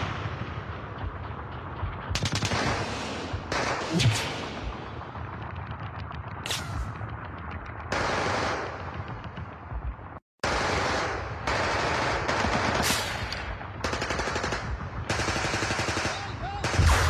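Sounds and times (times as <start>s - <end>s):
rapid automatic gunfire: 2.1s - 4.9s, 7.9s - 9.1s, 10.4s - 17.0s.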